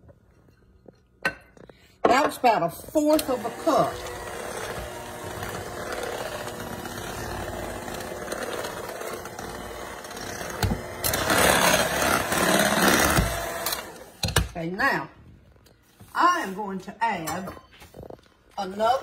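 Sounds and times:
electric hand mixer whipping: 2.8 - 14.2.

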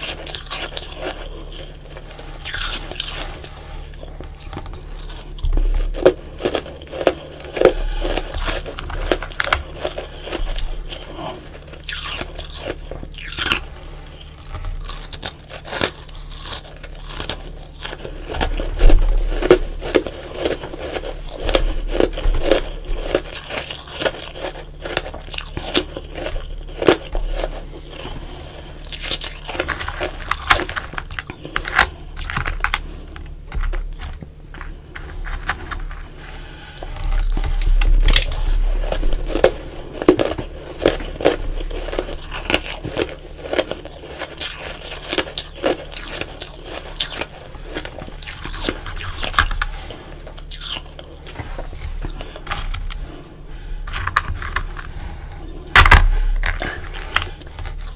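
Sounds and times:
crunching and chewing ice: 0.0 - 57.9.

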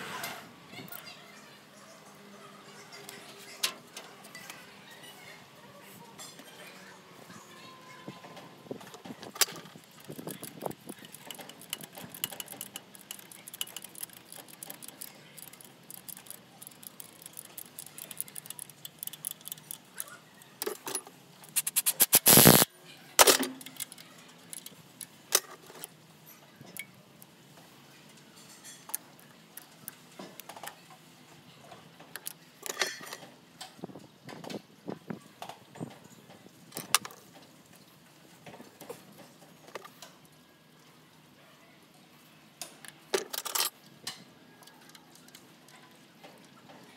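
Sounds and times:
metal tools clinking and rattling: 9.4 - 22.6, 32.2 - 33.3, 43.2 - 43.8
small ticks: 9.8 - 20.2
harsh bursts of noise: 21.4 - 22.7.

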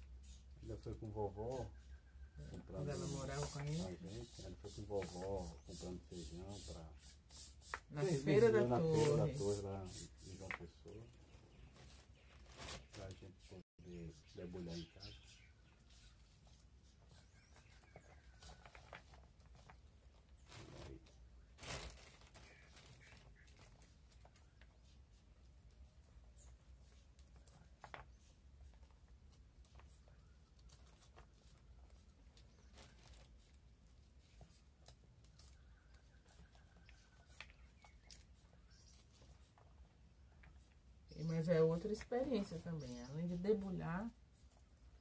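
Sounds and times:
crackling rustle: 10.4 - 13.4, 15.7 - 45.0.

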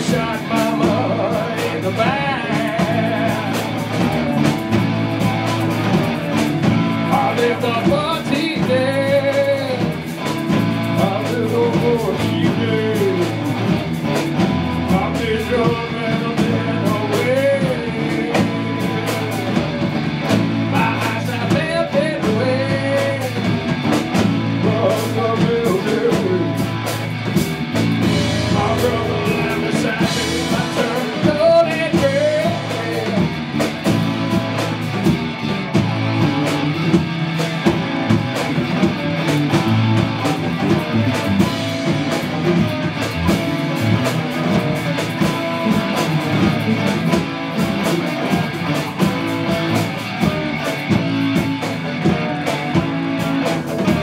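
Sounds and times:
man singing into a microphone: 0.0 - 4.0, 7.0 - 9.9, 10.9 - 13.6, 14.8 - 19.5, 20.7 - 23.6, 24.6 - 26.6, 28.2 - 33.4
live rock band playing: 0.0 - 54.0.

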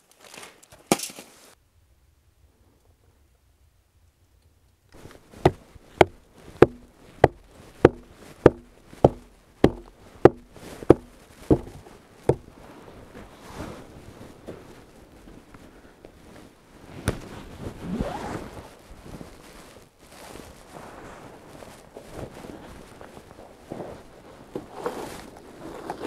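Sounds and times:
faint rustling: 4.9 - 26.0
hatchet striking wood: 5.4 - 12.5.

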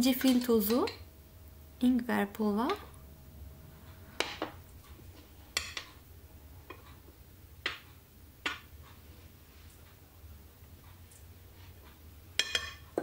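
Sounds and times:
metal spoon clinking on glass: 12.4 - 12.9.

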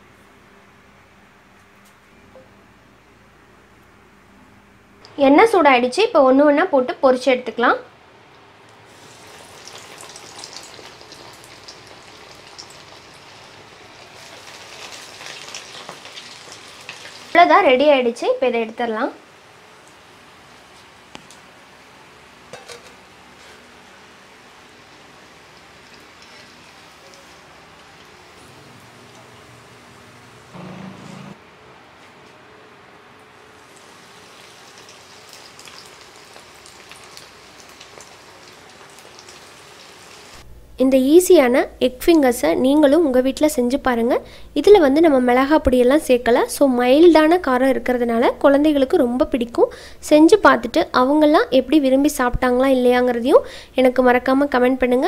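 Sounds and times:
food sizzling in hot oil: 8.8 - 17.9, 22.5 - 30.5, 33.6 - 40.4.

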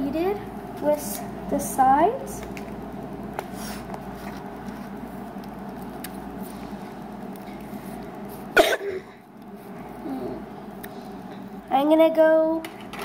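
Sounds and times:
person clearing throat: 8.6 - 9.2.

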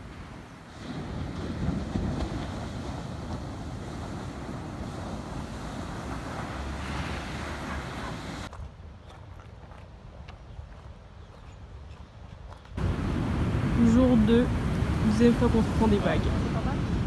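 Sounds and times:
waves breaking on shore: 0.0 - 8.5, 12.8 - 17.0
wind buffeting microphone: 0.0 - 17.0.

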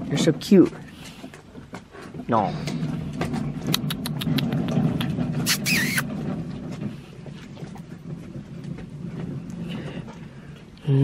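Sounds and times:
engine running: 2.6 - 10.8
short harsh noise: 5.4 - 6.1.

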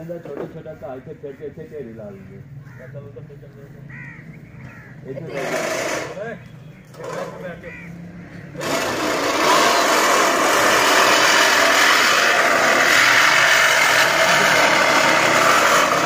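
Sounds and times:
reel lawn mower whirring: 5.4 - 6.2, 8.6 - 16.0.

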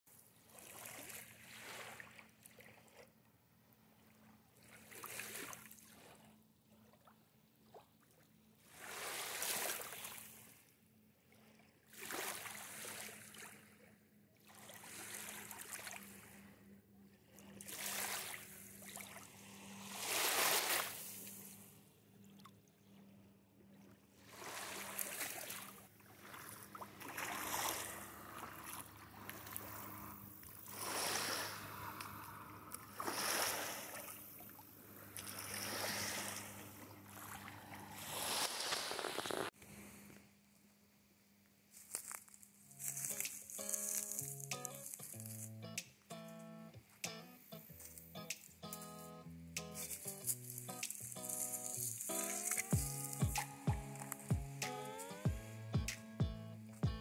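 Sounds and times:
small waves washing on shore: 0.4 - 3.1, 8.6 - 10.6, 11.9 - 13.8, 14.4 - 16.5, 17.3 - 21.8, 24.2 - 39.5.

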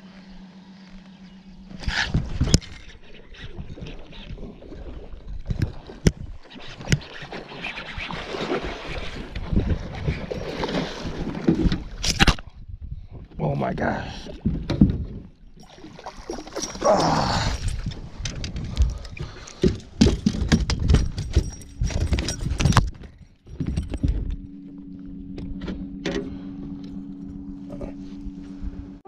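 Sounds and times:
low two-tone hum: 0.0 - 7.0, 14.1 - 29.0
landing net and rod clattering: 14.5 - 26.4.

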